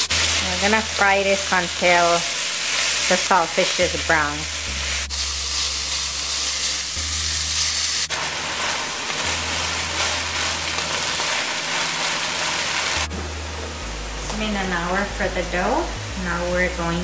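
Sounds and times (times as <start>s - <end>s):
fish sizzling in a wok: 0.0s - 16.2s
wooden spatula stirring: 8.1s - 13.0s
low steady hum: 12.8s - 17.0s.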